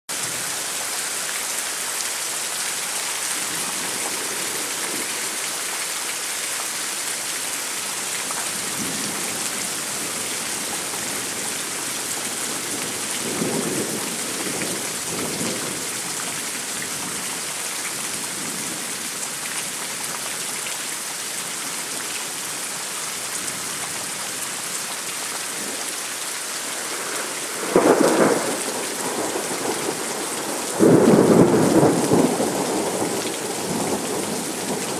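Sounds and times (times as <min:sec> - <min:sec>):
rain hissing: 0:00.1 - 0:16.7, 0:24.5 - 0:34.9
thunder rumbling: 0:26.8 - 0:34.9
loud thunderclap: 0:27.6 - 0:34.1.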